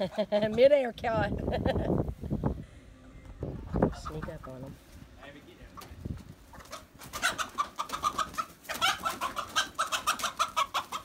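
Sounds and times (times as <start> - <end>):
chickens squawking: 3.4 - 4.9, 5.7 - 11.0.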